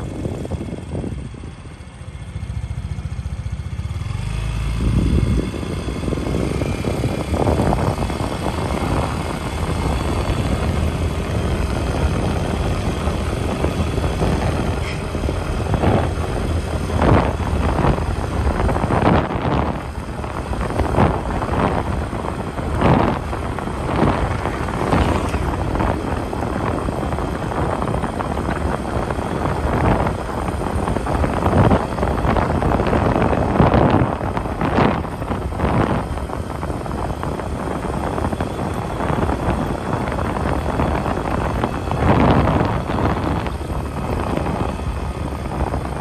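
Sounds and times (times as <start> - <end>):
wind buffeting microphone: 0.0 - 46.0.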